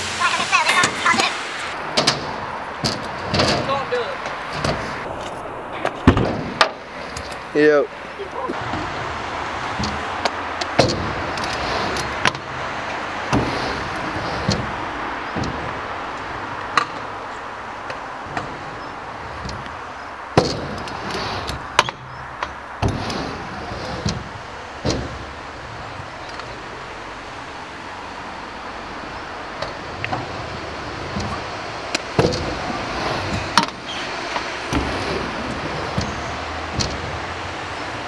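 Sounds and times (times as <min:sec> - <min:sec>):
scooter wheels rolling on ramps: 0:00.0 - 0:38.0
scooter landing clacks and bangs: 0:01.9 - 0:05.0, 0:05.8 - 0:07.4, 0:09.6 - 0:17.2, 0:20.3 - 0:26.6, 0:29.6 - 0:38.0.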